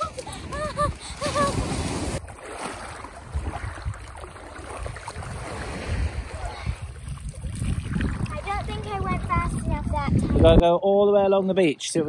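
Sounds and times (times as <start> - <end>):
water sloshing and splashing: 0.0 - 10.6.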